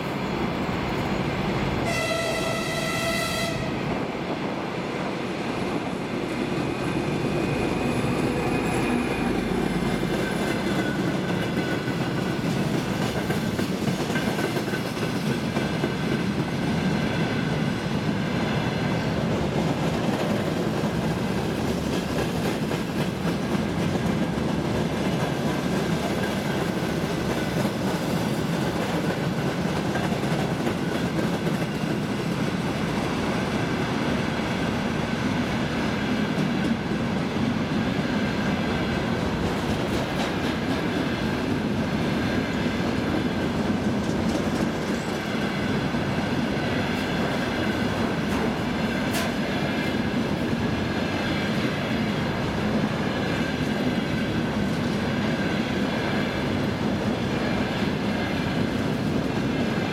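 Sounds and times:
locomotive horn: 1.8 - 3.8.

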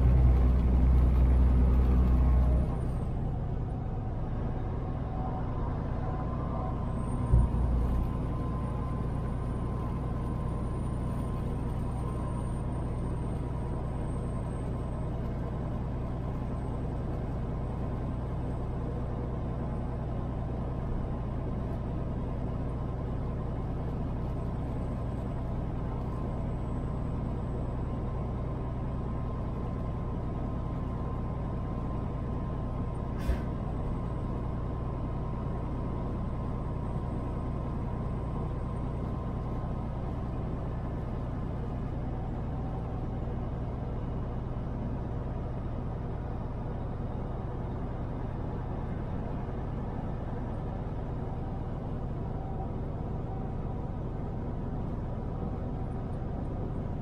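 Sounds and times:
road noise: 0.0 - 57.0
truck engine drone: 0.0 - 57.0.

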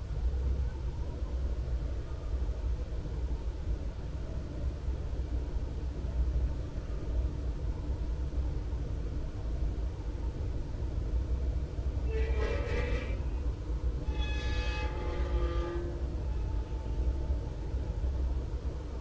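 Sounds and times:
low outdoor rumble: 0.0 - 19.0
horn-like tone: 12.1 - 13.2, 14.0 - 16.1.

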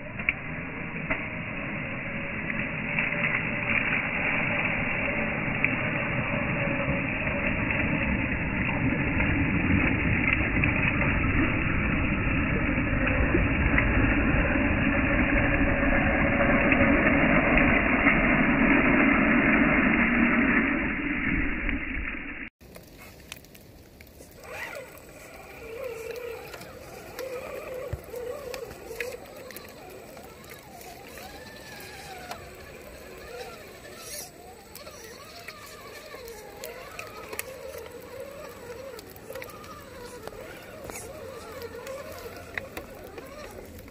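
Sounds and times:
water splashing: 0.0 - 43.9
faint ticks: 22.7 - 43.9
small electric motor whining: 24.2 - 43.9
rc car drivetrain running: 24.3 - 43.9.

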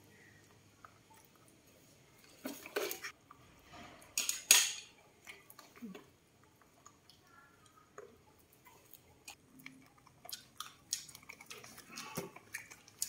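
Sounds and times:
monkeys crunching corn: 5.2 - 13.0.

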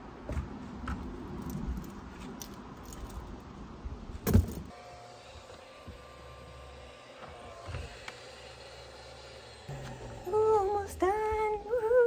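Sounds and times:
vacuum cleaner running: 4.7 - 12.0.

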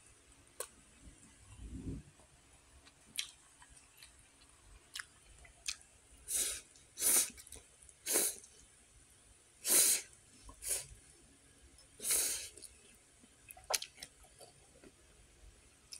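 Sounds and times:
mouth clicks and chewing: 2.8 - 5.8, 13.5 - 14.6.

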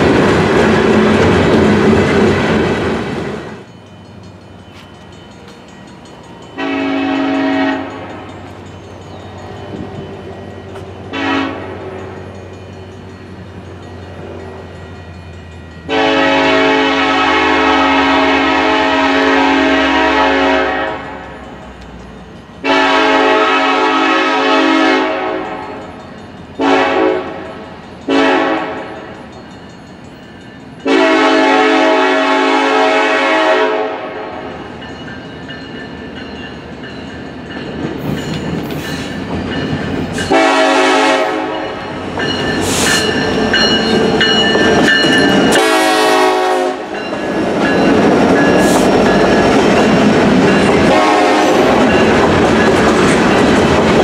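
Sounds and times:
train air horn blasts: 6.6 - 8.2, 11.1 - 12.0, 15.9 - 21.2, 22.6 - 25.7, 26.6 - 27.5, 28.1 - 28.9, 30.9 - 34.5, 40.3 - 41.8, 45.5 - 46.9, 50.8 - 51.9.

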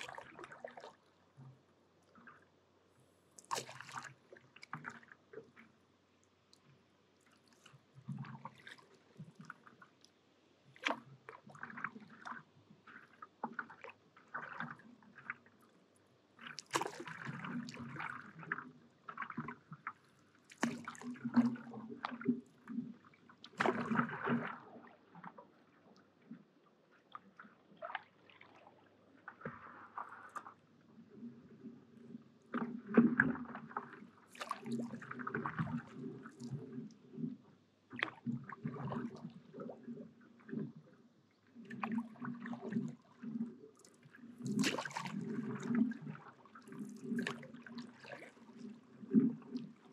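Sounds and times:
paddle splashing in water: 0.0 - 1.1, 3.4 - 5.8, 7.3 - 9.8, 10.7 - 15.5, 16.4 - 25.6, 27.1 - 30.6, 32.5 - 39.8, 41.5 - 49.9.

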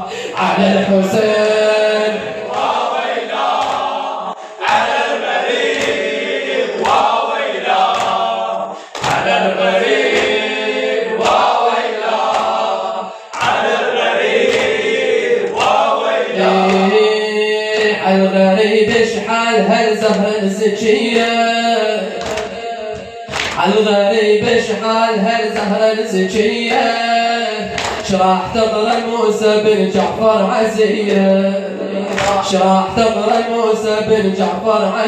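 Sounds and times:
men chanting: 0.0 - 35.0
hands slapping chests: 2.5 - 4.0, 5.6 - 6.2, 6.8 - 10.5, 11.2 - 12.7, 13.3 - 15.9, 22.2 - 23.6, 27.7 - 28.1, 32.1 - 32.5.

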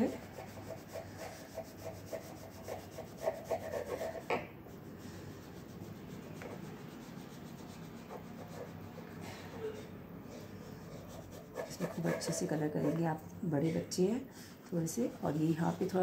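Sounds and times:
crayon scratching on paper: 0.0 - 4.3, 4.9 - 9.1, 10.4 - 13.1, 14.9 - 16.0.

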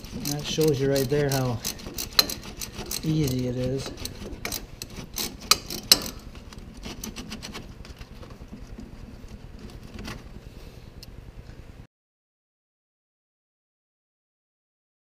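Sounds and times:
ratchet metallic clicks: 0.0 - 7.2.

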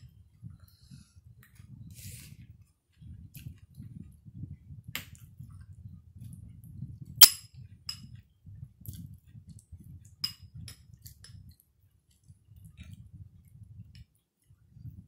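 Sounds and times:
soft chewing: 8.8 - 10.2.

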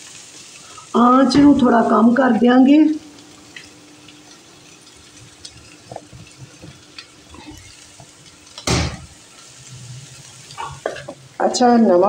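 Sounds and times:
soft frying sizzle: 0.0 - 12.0
spoon stirring and scraping pan: 10.5 - 11.2.

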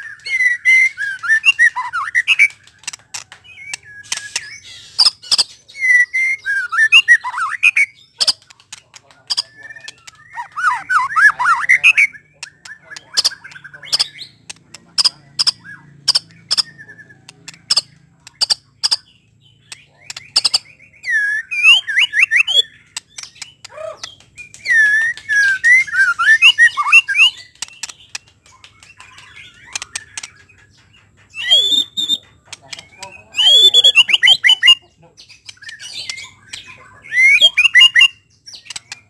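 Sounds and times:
bird whistled phrases: 0.0 - 2.6, 3.6 - 8.4, 9.4 - 14.4, 20.2 - 22.8, 23.4 - 27.5, 31.4 - 34.9, 35.5 - 39.0
bird ticking notes: 6.8 - 39.0.

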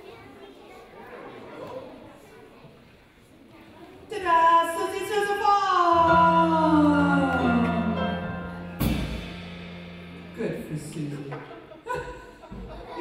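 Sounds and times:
musical note sliding down: 6.0 - 10.9
low held note: 6.0 - 11.3.

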